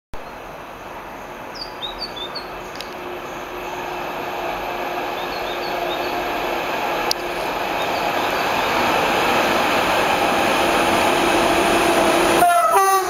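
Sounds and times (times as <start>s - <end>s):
distant train rumble: 0.2s - 13.0s
small birds chirping: 1.1s - 4.1s, 5.0s - 6.4s, 7.2s - 8.7s.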